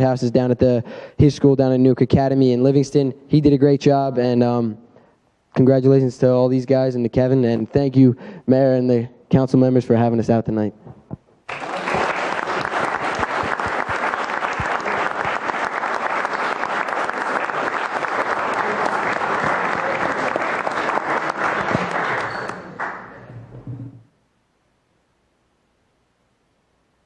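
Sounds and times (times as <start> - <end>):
audience applauding: 11.5 - 23.5.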